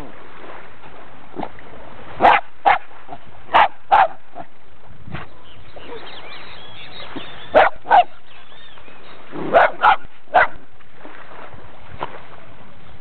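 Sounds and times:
dog barking: 0:02.2 - 0:02.8, 0:03.5 - 0:04.5, 0:07.5 - 0:08.1, 0:09.5 - 0:10.6.

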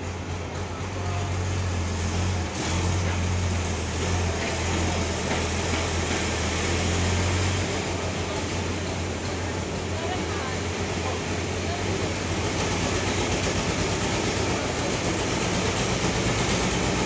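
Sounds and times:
forklift engine humming: 0:00.0 - 0:17.0.

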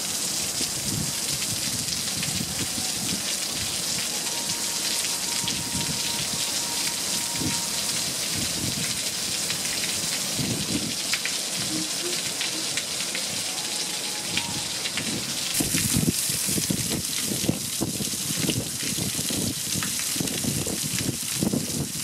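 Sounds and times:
water splashing hiss: 0:00.0 - 0:22.0.

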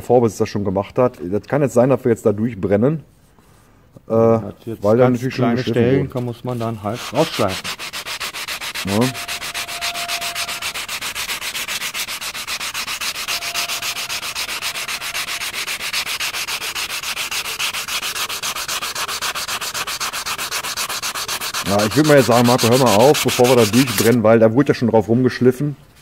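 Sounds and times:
sandpaper rubbing on metal: 0:06.4 - 0:24.2.

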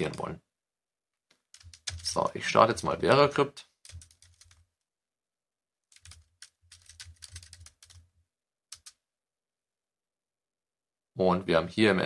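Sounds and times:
faint keyboard typing: 0:01.3 - 0:02.3, 0:03.8 - 0:04.8, 0:05.9 - 0:08.1, 0:08.7 - 0:09.0.

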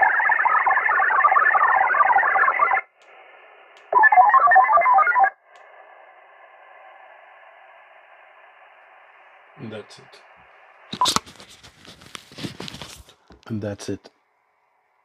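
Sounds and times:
digital radio signal warble: 0:03.9 - 0:05.4.

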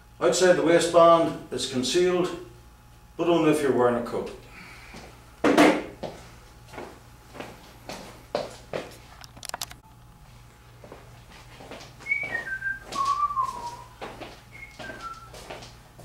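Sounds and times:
person whistling: 0:12.0 - 0:15.4.

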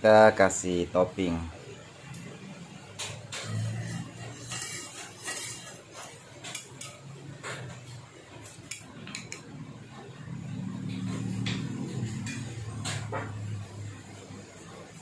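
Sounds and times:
metal spatula scraping a pan: 0:03.3 - 0:07.1.

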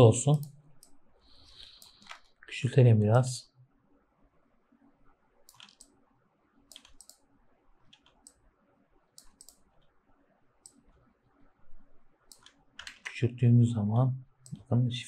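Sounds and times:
faint computer mouse clicks: 0:01.6 - 0:02.4, 0:05.5 - 0:06.0, 0:06.7 - 0:07.3, 0:09.2 - 0:09.9, 0:10.6 - 0:10.8, 0:12.3 - 0:13.2.

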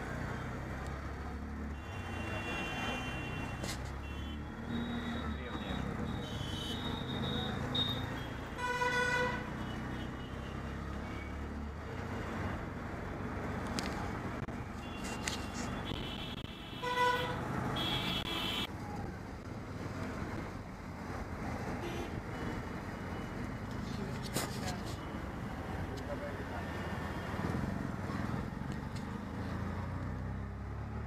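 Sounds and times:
auto-rickshaw engine: 0:00.0 - 0:31.0
vehicle horn honking: 0:08.6 - 0:09.6.

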